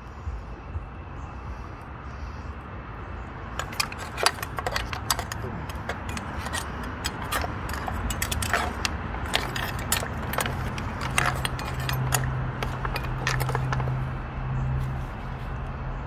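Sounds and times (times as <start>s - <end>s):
metal spoon scraping clam shells: 3.6s - 14.1s.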